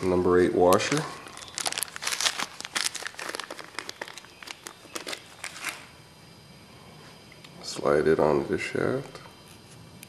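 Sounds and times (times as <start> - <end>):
hands rummaging through hardware: 0.7 - 5.8.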